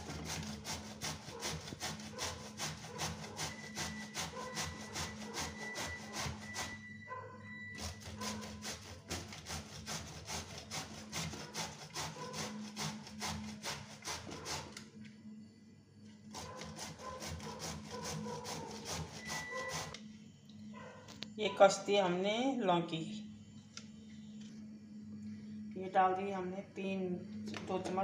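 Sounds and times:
gourd rasping on metal grater: 0.0s - 6.8s, 7.8s - 14.8s, 16.4s - 20.0s.

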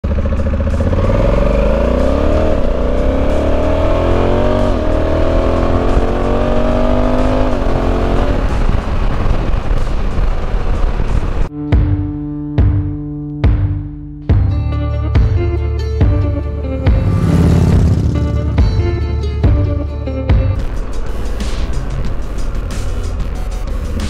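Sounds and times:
motorcycle engine accelerating: 0.0s - 11.5s, 16.1s - 22.8s
wind noise: 7.4s - 11.5s.

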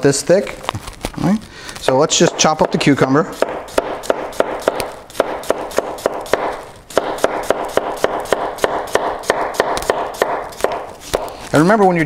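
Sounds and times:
knife chopping on plastic board: 1.9s - 11.4s.

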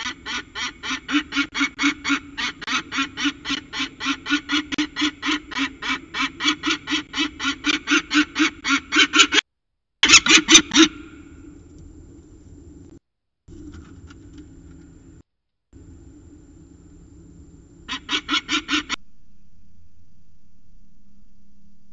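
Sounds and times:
falcon harsh calls: 0.0s - 9.4s, 10.0s - 11.4s, 17.9s - 19.0s.

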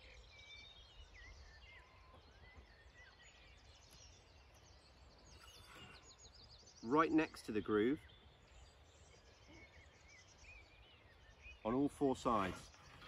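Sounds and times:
faint birdsong: 0.0s - 13.0s.

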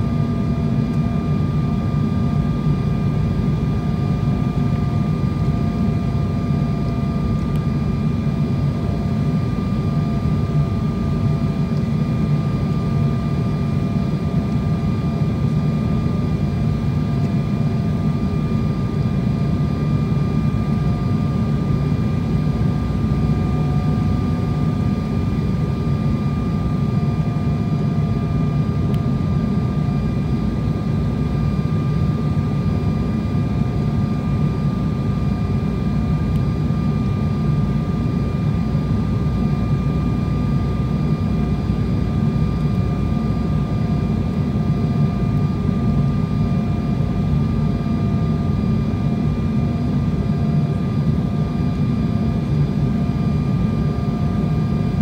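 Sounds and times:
airliner engine rumble: 0.0s - 55.0s.

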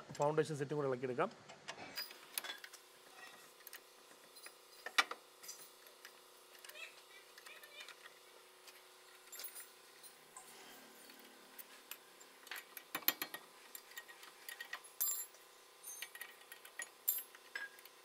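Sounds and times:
metal tools clinking: 4.3s - 5.9s, 9.1s - 17.9s.

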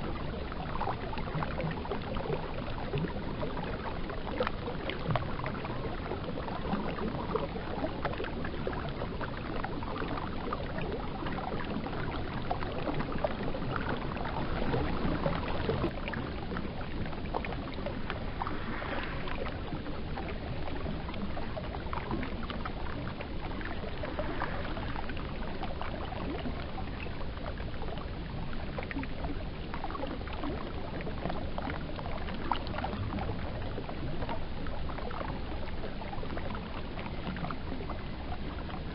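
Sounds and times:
small splashes and clicks: 0.0s - 38.9s
river water rushing: 17.7s - 20.0s.

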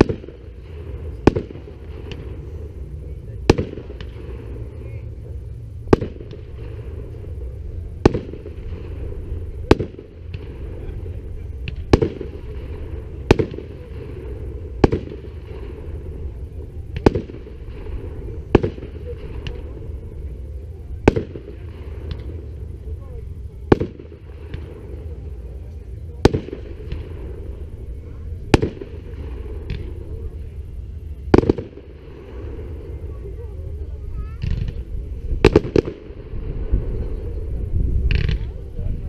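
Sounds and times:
firework shells bursting: 0.0s - 33.4s, 34.0s - 38.7s
low background rumble: 0.0s - 39.0s.

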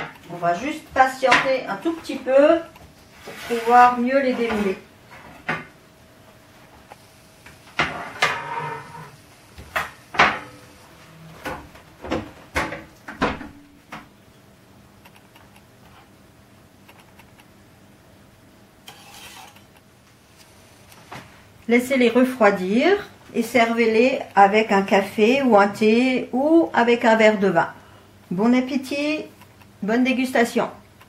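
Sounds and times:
palette knife scraping: 18.9s - 19.8s.

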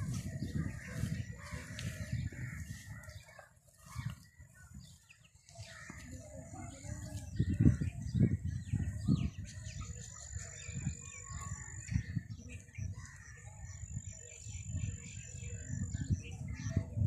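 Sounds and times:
small birds chirping: 0.0s - 17.0s
wind buffeting microphone: 0.0s - 17.0s.

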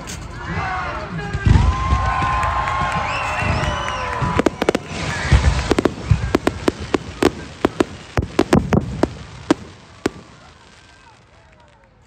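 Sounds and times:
fireworks booming: 1.4s - 11.4s
fireworks crackling pops: 1.4s - 12.0s.

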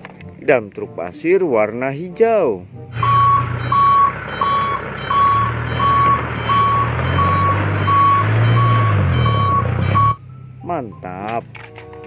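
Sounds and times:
truck engine running: 2.9s - 10.3s
truck reversing alarm beeps: 3.0s - 11.2s.

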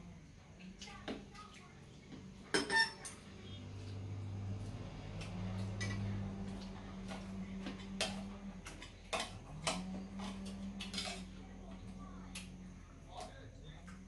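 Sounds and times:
steady low hum: 0.0s - 14.0s
utensils clicking against metal bowls: 5.1s - 14.0s.

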